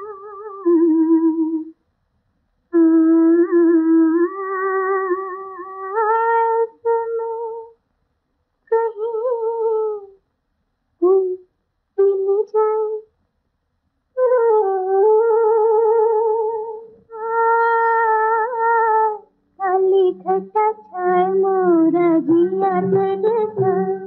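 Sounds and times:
woman humming a slow melody: 0.0s - 1.7s, 2.8s - 7.8s, 11.0s - 13.0s.

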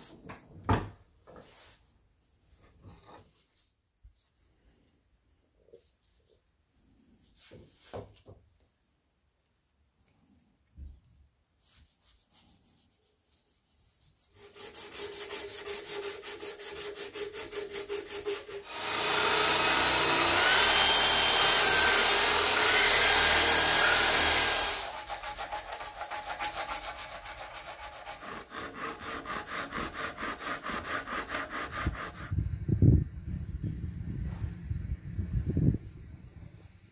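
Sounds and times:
hand sanding wood: 11.6s - 32.4s
hand tool strokes on wood: 11.8s - 32.4s
power drill grinding wood: 18.6s - 27.4s.

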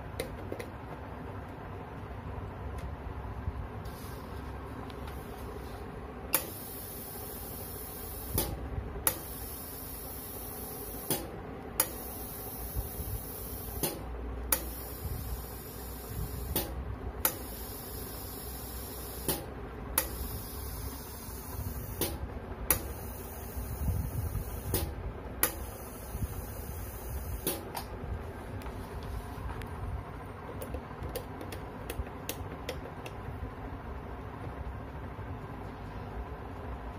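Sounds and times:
steady low hum: 0.0s - 36.9s
compressed air hissing: 3.8s - 4.4s, 6.4s - 27.6s
valve clicking: 6.3s - 27.9s.

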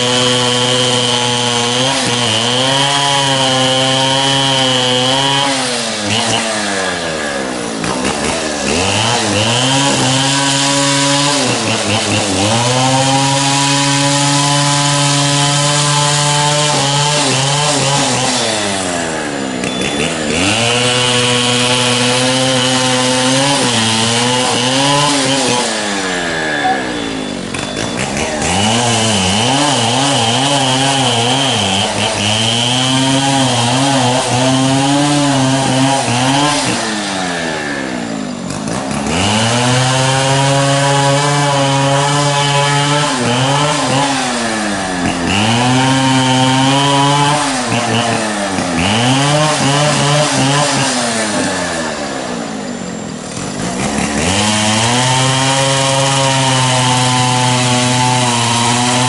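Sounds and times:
engine running hard: 0.0s - 59.0s
high whine: 25.7s - 28.4s.

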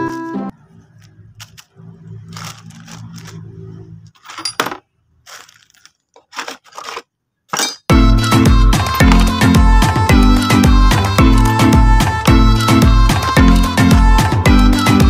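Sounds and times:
plastic bag crinkling: 0.9s - 3.6s, 5.1s - 7.2s
steel balls clinking in plastic tray: 4.2s - 7.9s
loud music with strings: 7.9s - 15.0s.

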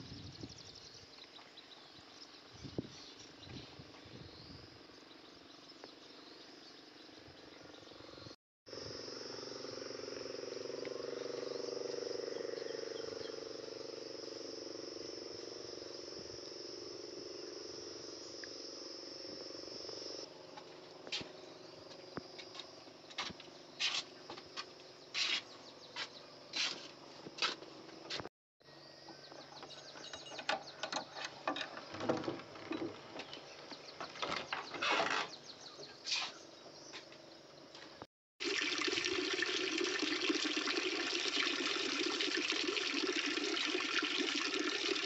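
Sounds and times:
insects trilling: 0.0s - 45.0s
short knocks or scrapes: 34.2s - 35.4s.

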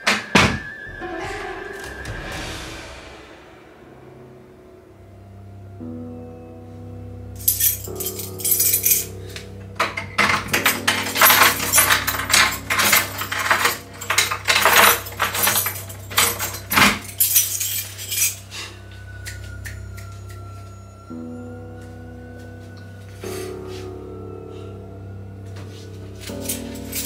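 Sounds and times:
faint background music: 0.0s - 27.0s
door handle and lock rattling: 9.8s - 18.3s.

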